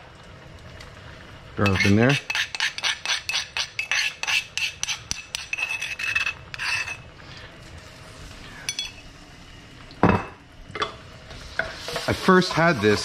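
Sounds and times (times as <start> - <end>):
butter sizzling faintly: 0.0 - 13.0
spoon scraping stone mortar: 1.6 - 7.1.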